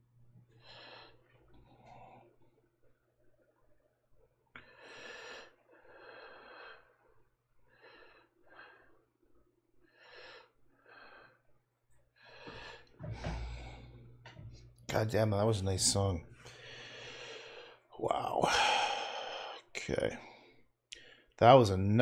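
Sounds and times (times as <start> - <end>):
faint breathing: 0.5 - 2.4, 4.6 - 9.1, 12.2 - 14.9, 16.3 - 21.4
low steady hum: 12.2 - 20.5.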